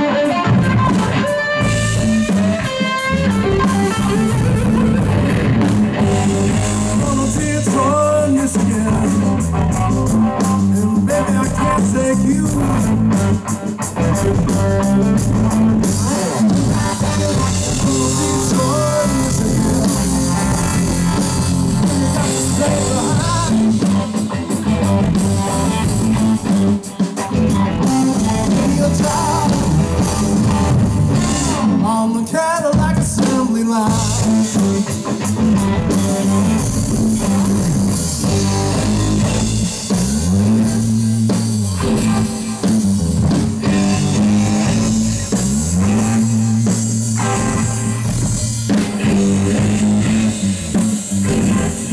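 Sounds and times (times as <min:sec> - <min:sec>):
bass guitar: 0:00.0 - 0:51.9
drum kit: 0:00.0 - 0:51.9
electric guitar: 0:00.0 - 0:51.9
man singing: 0:06.1 - 0:13.5, 0:15.5 - 0:24.2, 0:27.8 - 0:30.5, 0:31.3 - 0:34.8.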